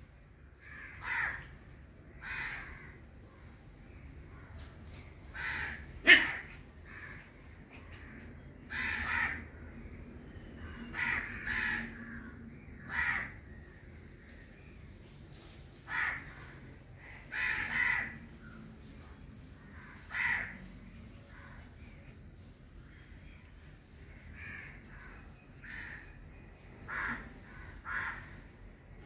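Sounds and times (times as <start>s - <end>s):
crows cawing: 0.6s - 3.1s, 5.3s - 9.7s, 10.6s - 13.6s, 15.8s - 18.3s, 19.6s - 21.6s, 24.1s - 26.2s, 26.8s - 28.6s.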